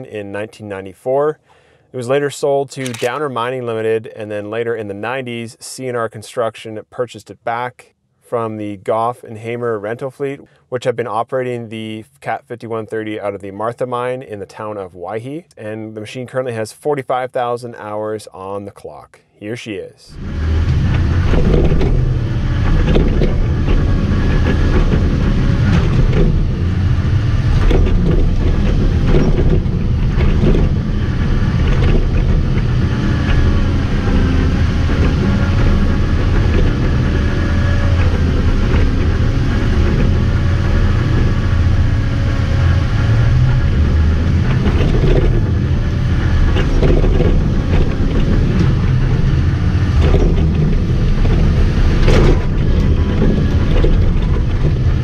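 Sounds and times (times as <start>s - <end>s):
vehicle engine rumbling: 2.8s - 4.3s, 20.1s - 55.0s.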